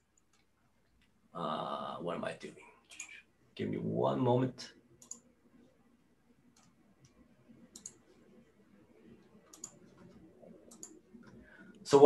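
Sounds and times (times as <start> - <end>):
faint computer clicking: 0.0 - 1.2, 2.8 - 3.3, 5.0 - 5.8, 6.5 - 11.8.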